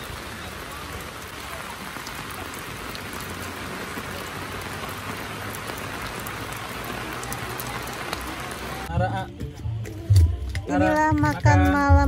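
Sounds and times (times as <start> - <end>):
heavy rain falling: 0.0 - 8.9.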